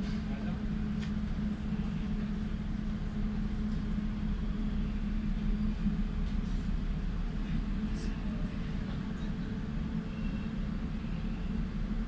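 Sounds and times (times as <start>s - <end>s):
subway car humming: 0.0s - 12.0s.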